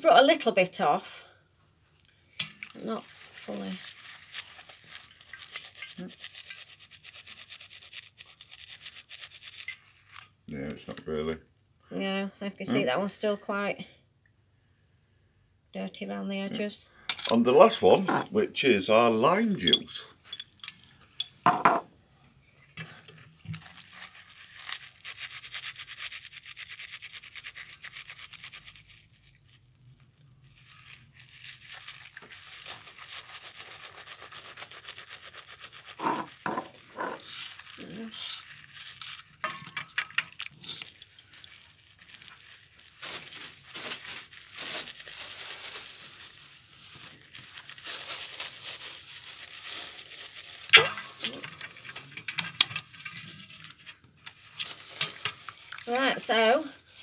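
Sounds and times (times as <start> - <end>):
coin scrubbed by hand in bowl: 2.7 - 10.1, 23.6 - 29.7, 30.5 - 42.5.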